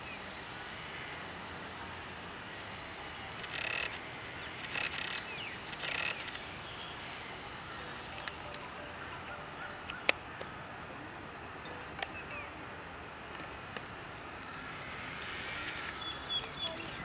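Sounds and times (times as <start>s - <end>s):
high hissing buzz: 0.0s - 9.6s, 11.4s - 17.0s
park background noise: 0.0s - 17.0s
bird chirping: 3.4s - 10.2s, 11.3s - 13.2s, 14.8s - 17.0s.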